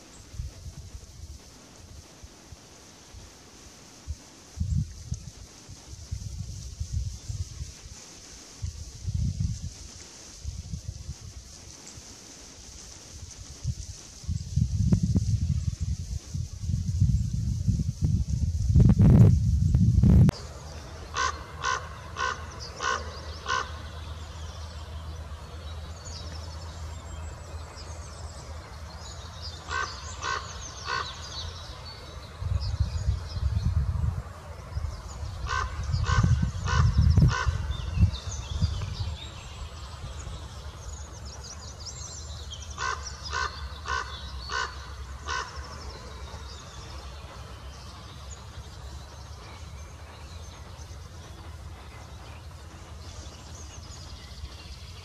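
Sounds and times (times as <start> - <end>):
small birds chirping: 4.6 - 55.0
low rumbles: 14.4 - 55.0.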